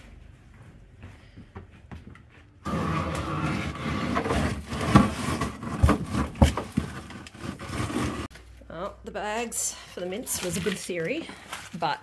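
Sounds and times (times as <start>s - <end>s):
plastic bags rustling and scraping: 2.6s - 8.4s, 10.1s - 12.0s.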